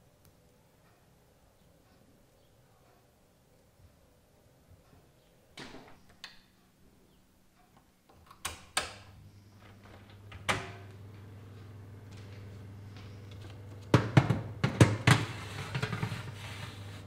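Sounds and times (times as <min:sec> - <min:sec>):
oven fan humming: 0:08.8 - 0:17.0.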